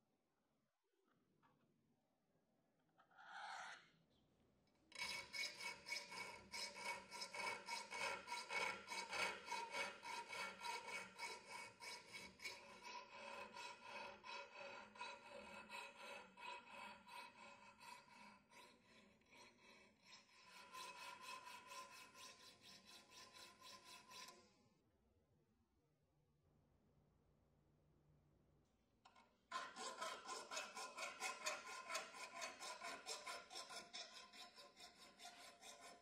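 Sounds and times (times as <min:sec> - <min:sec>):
file scraping steel bar: 0:04.9 - 0:24.6, 0:29.1 - 0:36.0.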